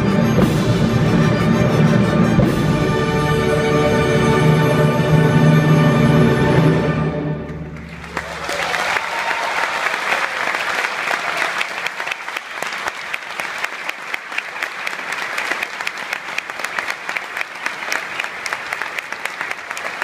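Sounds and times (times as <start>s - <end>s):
audience applauding: 7.6s - 20.0s.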